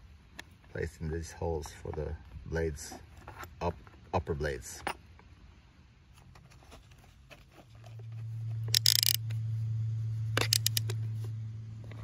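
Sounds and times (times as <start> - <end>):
electric screwdriver humming: 8.7 - 9.2, 10.4 - 11.0
sharp clicks: 8.7 - 9.2, 10.4 - 11.0
handling clicks: 8.7 - 9.3, 10.4 - 11.0.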